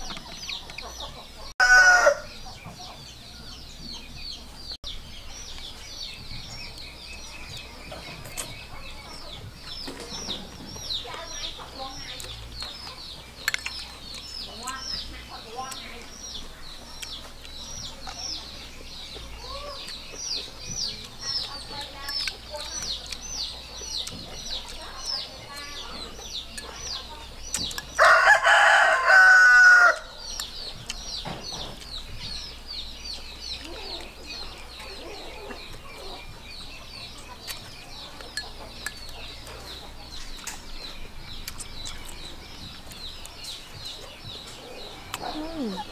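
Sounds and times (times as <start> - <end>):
rooster crowing: 1.6 - 2.3, 28.0 - 30.1.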